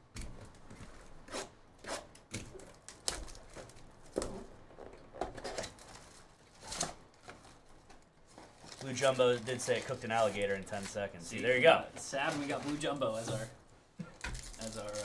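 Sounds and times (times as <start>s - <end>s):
cardboard box rustling and scraping: 11.5s - 13.6s
cardboard tearing: 12.2s - 13.5s, 14.4s - 15.0s.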